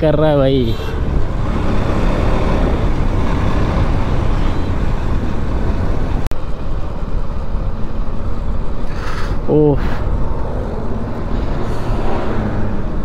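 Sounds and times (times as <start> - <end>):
motorcycle engine: 0.8 - 9.0.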